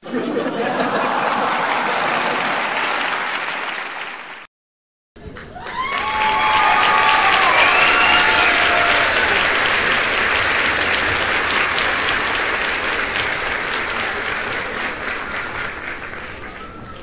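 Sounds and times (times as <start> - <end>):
crowd applauding and cheering: 1.1 - 4.4, 5.2 - 17.0
whoops: 5.5 - 9.6.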